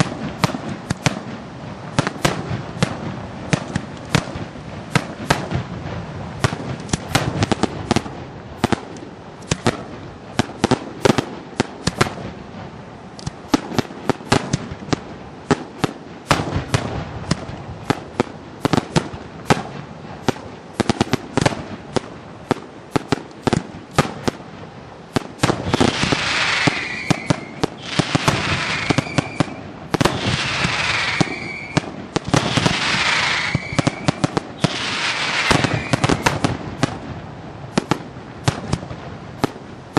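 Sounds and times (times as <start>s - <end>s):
fireworks bangs and cracks: 0.0s - 39.9s
firework falling whistle: 25.6s - 36.6s.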